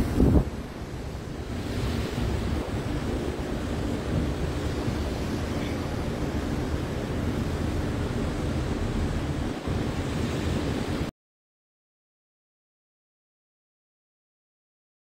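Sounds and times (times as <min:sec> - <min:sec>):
wind buffeting microphone: 0:00.0 - 0:11.1.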